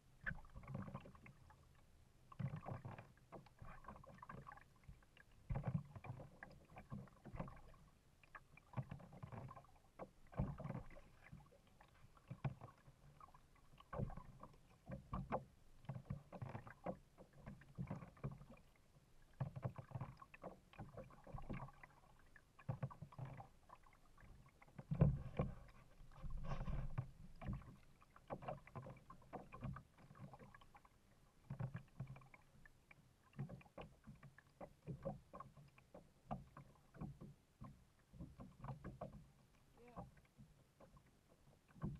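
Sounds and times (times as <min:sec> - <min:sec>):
paddle splashing water: 0:00.0 - 0:41.9.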